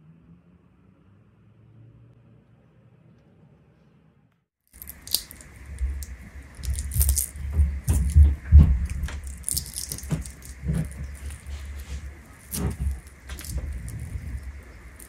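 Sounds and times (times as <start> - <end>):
dates being torn by hand: 4.8 - 15.0.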